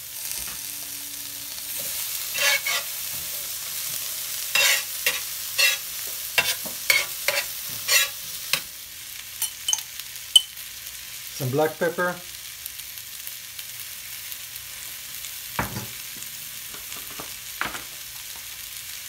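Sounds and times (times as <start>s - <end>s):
vegetables sizzling on a griddle: 0.0s - 19.0s
tongs scraping a griddle: 1.6s - 8.7s.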